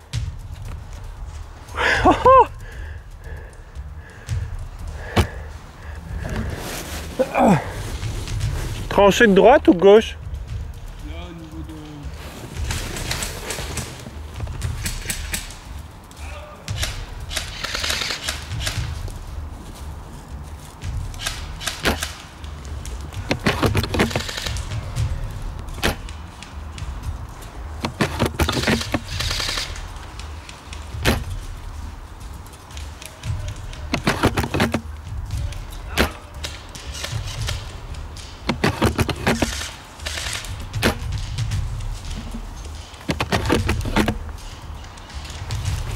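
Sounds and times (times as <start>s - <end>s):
airsoft guns firing: 12.7s - 15.7s, 16.7s - 19.4s, 20.9s - 27.0s, 27.8s - 31.6s, 33.2s - 45.9s
rifle bolt clicks and knocks: 16.7s - 19.1s, 21.1s - 22.2s, 23.0s - 26.8s, 27.8s - 31.5s, 32.7s - 44.5s.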